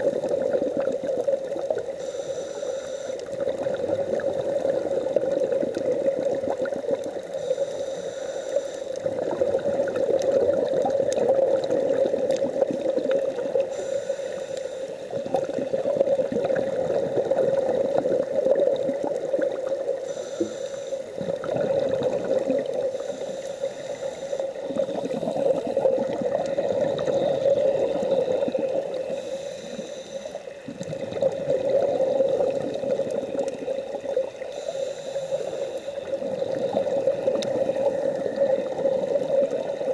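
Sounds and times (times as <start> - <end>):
scuba bubbles gurgling underwater: 0.0 - 39.9
diver breathing: 1.9 - 3.4, 7.3 - 9.4, 13.6 - 15.2, 20.0 - 21.5, 22.8 - 26.2, 27.0 - 30.7, 34.4 - 36.3.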